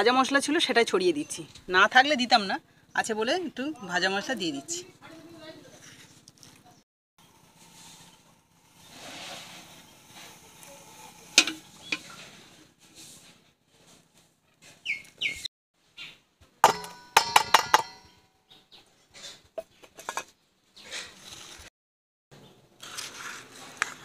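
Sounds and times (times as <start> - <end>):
metal dishes clinking: 11.4 - 12.2, 16.6 - 18.1.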